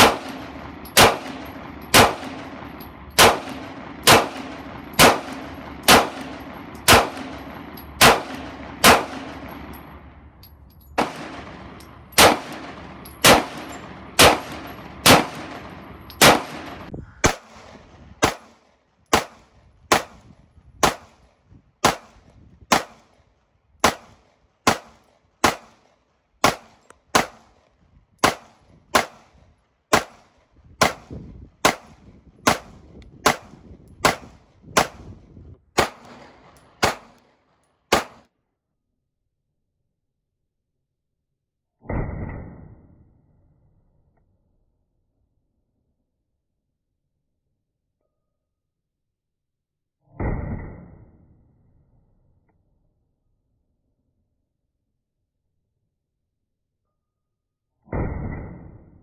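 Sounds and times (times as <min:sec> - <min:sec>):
pistol shots: 0:00.0 - 0:10.0, 0:11.0 - 0:20.2, 0:20.8 - 0:21.2, 0:21.8 - 0:23.1, 0:23.8 - 0:25.8, 0:26.4 - 0:27.6, 0:28.2 - 0:29.3, 0:29.9 - 0:35.1, 0:35.8 - 0:37.2, 0:37.9 - 0:38.2.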